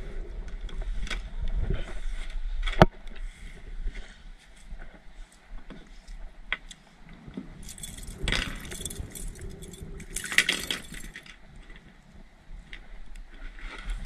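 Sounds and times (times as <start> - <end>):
fishing gear clinking and rattling: 7.6 - 11.9.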